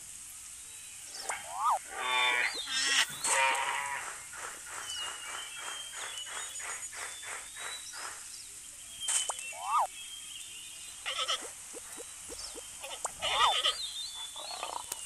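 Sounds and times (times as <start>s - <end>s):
quavering animal calls: 1.1s - 5.7s, 11.0s - 15.0s
pulsing animal call: 1.2s - 4.0s, 11.1s - 14.9s
whistle-like animal call: 1.3s - 3.7s, 9.5s - 9.9s.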